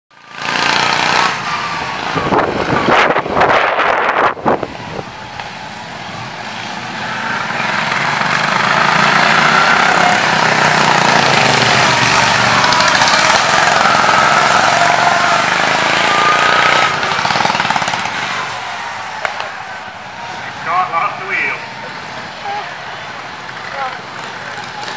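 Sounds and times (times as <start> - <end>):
racing lawn mower engines: 0.2 - 24.9
sharp bursts of noise: 0.3 - 24.8.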